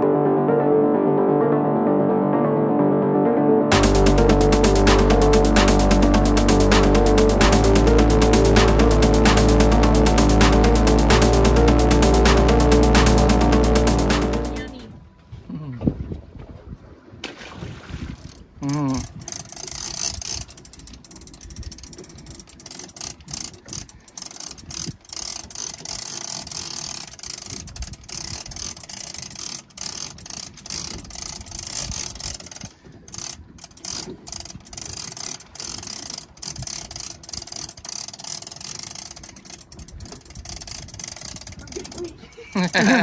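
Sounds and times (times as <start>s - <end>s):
fishing reel clicking: 18.6s - 43.0s.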